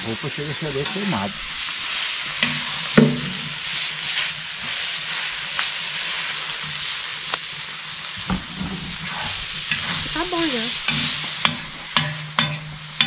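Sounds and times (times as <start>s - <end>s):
meat frying and sizzling: 0.0s - 13.0s
metal skimmer knocking on pan: 2.4s - 3.6s, 11.4s - 13.0s.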